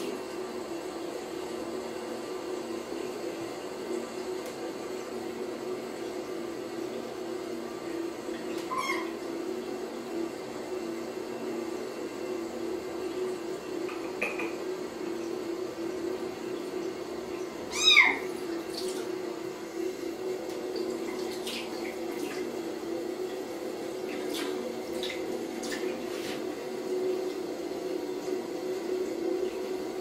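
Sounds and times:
kitten meowing: 0:08.7 - 0:09.2, 0:17.7 - 0:18.3
tap running into sink: 0:13.8 - 0:14.6.

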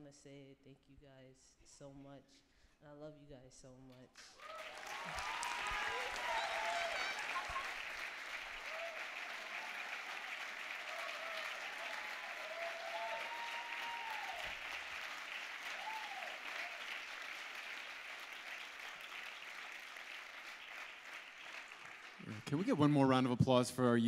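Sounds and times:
audience applauding: 0:04.3 - 0:23.1.

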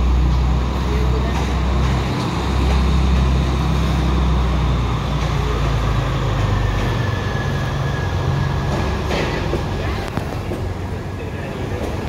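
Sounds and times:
diesel train engine rumble: 0:00.0 - 0:12.0.

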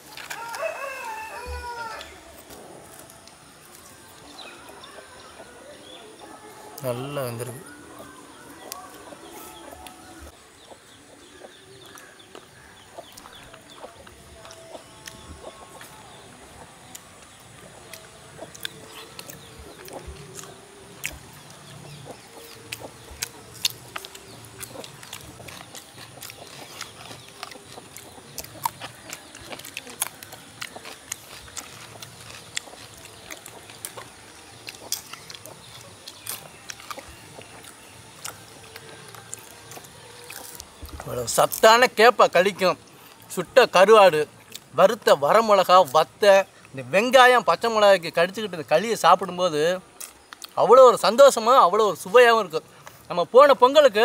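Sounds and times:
chewing and lip-smacking: 0:11.5 - 0:16.0, 0:16.8 - 0:41.6, 0:44.4 - 0:44.7, 0:50.0 - 0:50.6.

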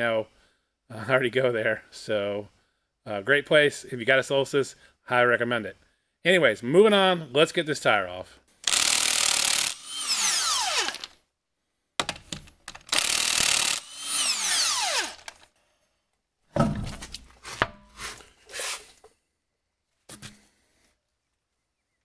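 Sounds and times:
knocks and clatter: 0:16.6 - 0:17.8.

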